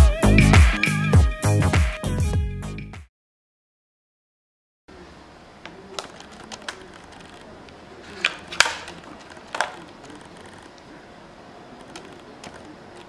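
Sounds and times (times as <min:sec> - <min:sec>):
plastic case clicks and knocks: 0:08.2 - 0:09.9.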